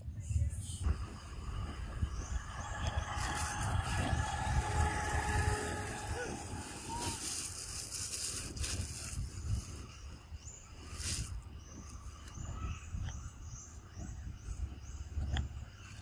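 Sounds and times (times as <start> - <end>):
low rumble: 0.2 - 10.0.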